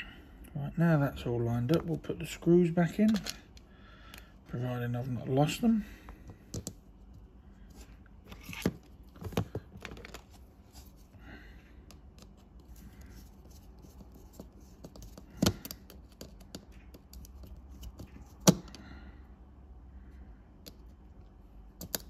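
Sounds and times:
small screws clicking and tapping: 21.8 - 22.0.

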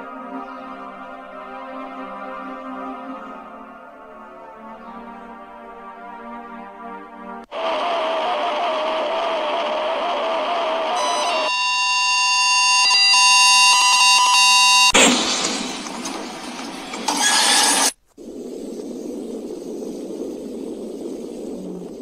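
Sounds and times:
static bursts: 7.5 - 22.0
high electronic alarm tone: 10.9 - 15.0
steady hiss: 17.8 - 22.0.

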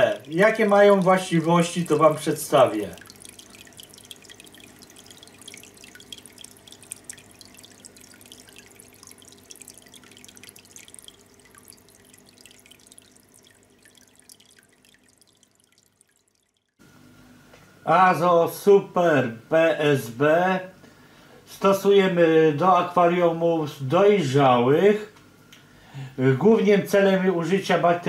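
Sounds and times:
aquarium water dripping and splashing: 0.0 - 17.0.

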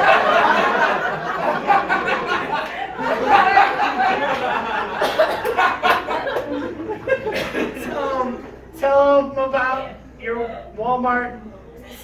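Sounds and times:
audience laughing loudly: 0.0 - 8.7.

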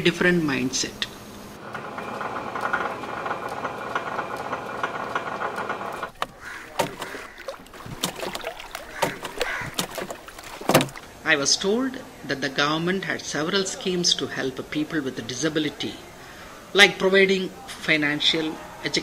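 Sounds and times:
steady background noise: 0.0 - 19.0
wet fish slapping and knocking: 6.1 - 11.2.

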